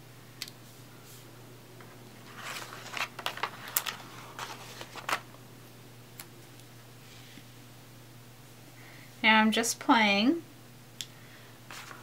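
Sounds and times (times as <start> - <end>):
small sharp snaps: 0.4 - 0.6
cellophane crinkling: 2.2 - 5.3, 11.7 - 12.0.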